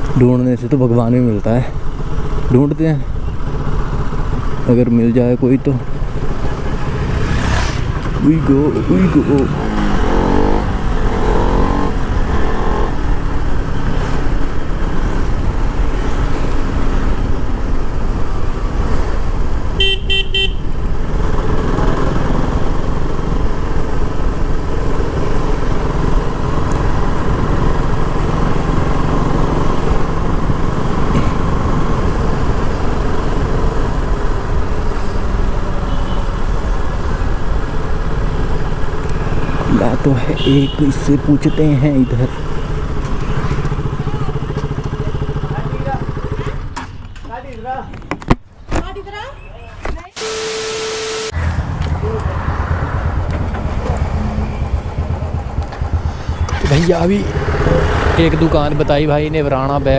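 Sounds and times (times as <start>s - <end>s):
road noise: 0.0s - 59.9s
motorcycle engine running: 1.8s - 13.8s, 42.4s - 46.7s, 50.4s - 59.9s
vehicle horn honking: 19.8s - 20.7s, 35.8s - 36.4s, 40.4s - 41.8s, 50.2s - 51.4s.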